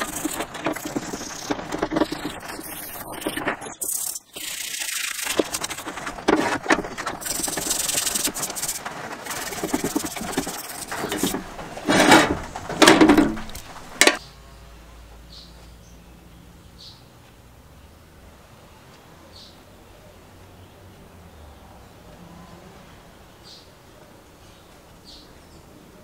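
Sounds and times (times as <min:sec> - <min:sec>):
toothbrush scrubbing in soapy water: 0:00.0 - 0:11.5.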